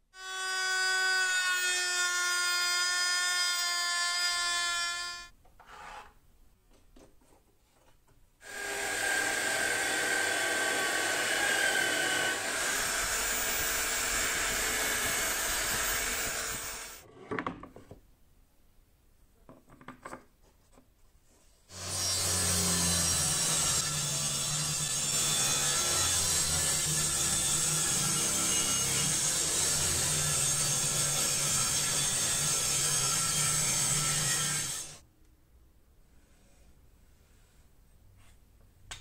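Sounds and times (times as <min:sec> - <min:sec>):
router motor whine: 0:08.4 - 0:17.0
drill press boring into wood: 0:08.5 - 0:17.0.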